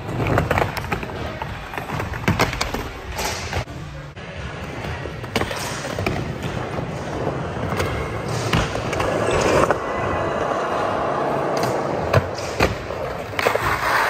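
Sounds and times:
skateboard wheels rolling on concrete: 4.4 - 14.0.

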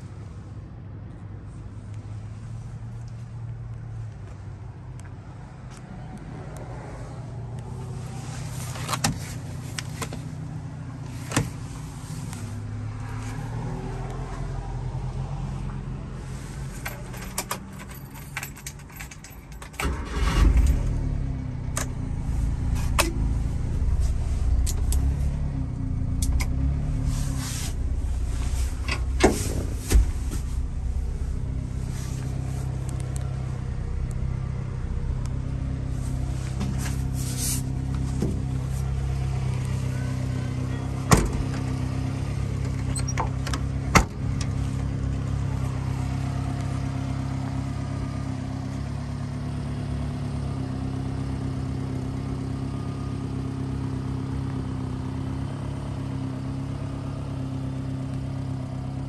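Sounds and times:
truck engine starting and idling: 16.2 - 52.3
low hum: 20.0 - 43.0.

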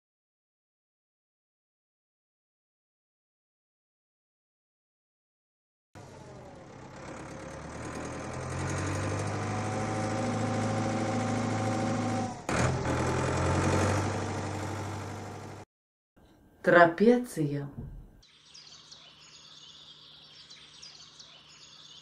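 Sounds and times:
tractor engine running: 6.0 - 15.6.

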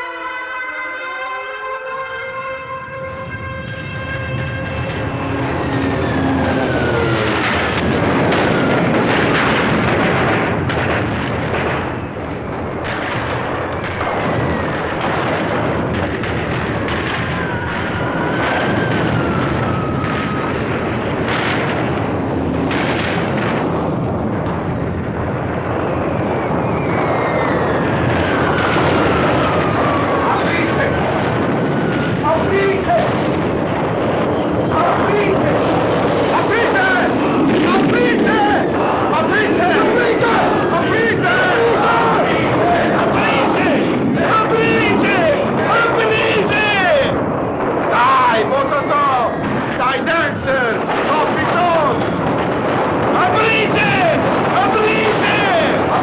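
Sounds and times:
descending bomb whistles: 0.0 - 9.4, 13.6 - 15.4, 17.2 - 24.0, 25.2 - 31.0, 31.6 - 32.6
bomb blasts: 1.9 - 56.0
aircraft rumble: 2.2 - 56.0.

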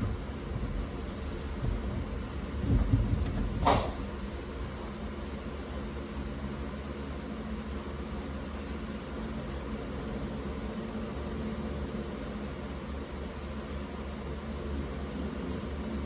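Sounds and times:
low thumps: 0.0 - 4.1
low background hum: 0.0 - 16.0.

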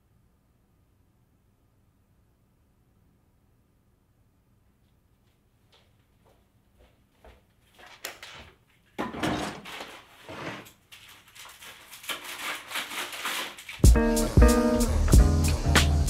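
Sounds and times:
rummaging knocks and clatters: 9.0 - 13.9.

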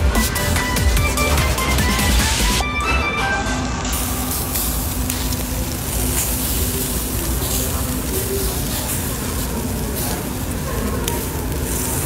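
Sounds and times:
meat sizzling on a grill: 3.9 - 12.0.

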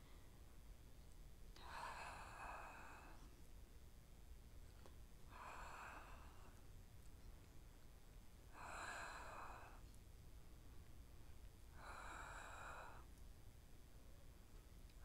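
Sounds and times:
woman breathing out: 5.3 - 6.7, 11.7 - 13.1.

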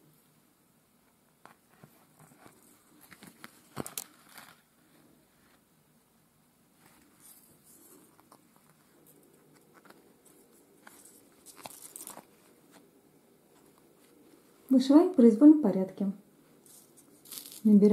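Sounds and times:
felt rustling: 6.7 - 14.8
small clicks of beads: 16.6 - 17.7.

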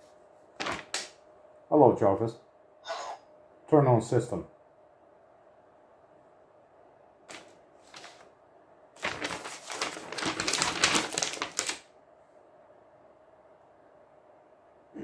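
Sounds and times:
paper rustling and crinkling: 0.6 - 1.1, 7.3 - 8.3, 9.0 - 11.9.

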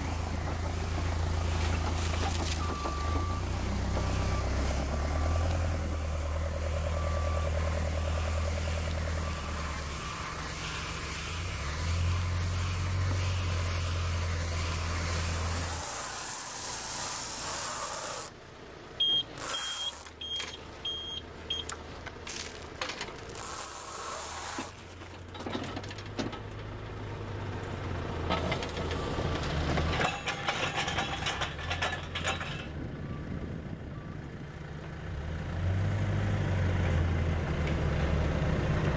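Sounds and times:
machinery clatter: 0.0 - 4.2, 28.2 - 32.8
telehandler engine running: 0.0 - 23.8
short high beeps: 19.0 - 21.7.

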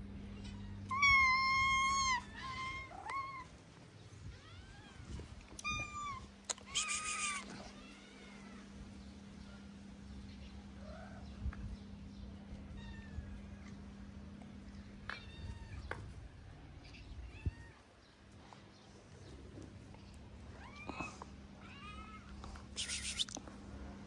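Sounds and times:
faint low hum: 0.0 - 24.0
cats meowing: 0.4 - 8.7, 12.4 - 14.0, 14.8 - 18.1, 20.4 - 23.6.

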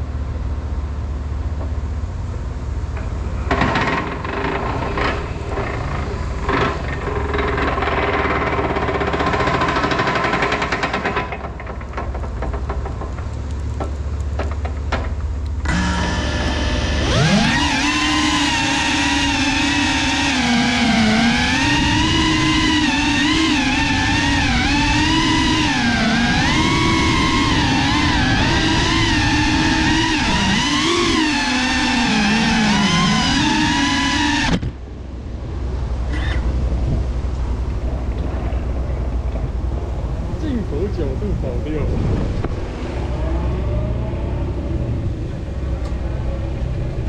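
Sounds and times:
drone motors whining: 15.4 - 47.0
wind buffeting microphone: 36.5 - 47.0.

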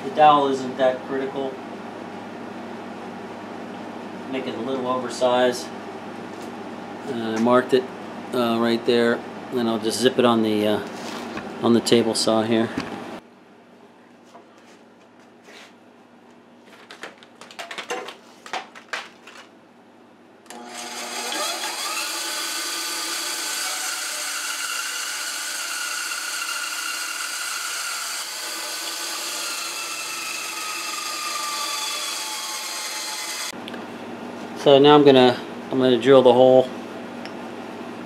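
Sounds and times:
band saw cutting wood: 20.5 - 33.6.

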